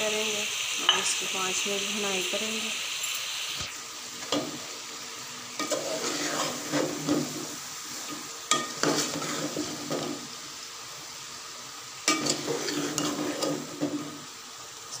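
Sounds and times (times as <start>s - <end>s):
vegetables sizzling in a pot: 0.0s - 15.0s
spoon scraping metal pot: 5.6s - 6.9s, 12.1s - 13.6s.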